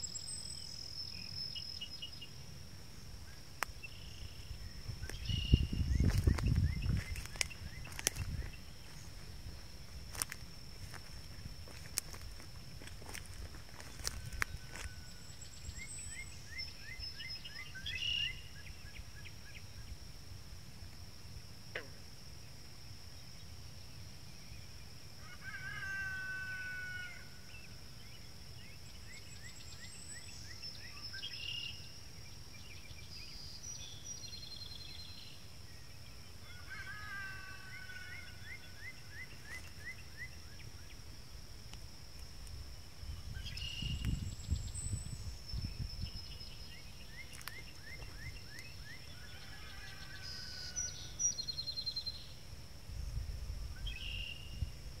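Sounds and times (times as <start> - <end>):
frogs calling: 3.1 - 20.0, 21.7 - 22.2, 36.3 - 41.2, 45.6 - 52.4
birds calling: 3.7 - 11.0.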